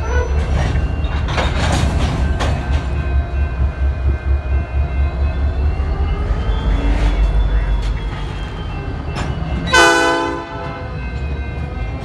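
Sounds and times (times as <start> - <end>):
freight train rumbling: 0.0 - 12.0.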